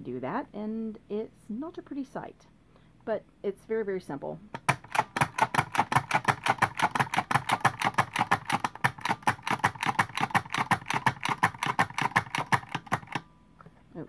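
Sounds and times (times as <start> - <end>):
punching machine clicking: 4.6 - 13.2.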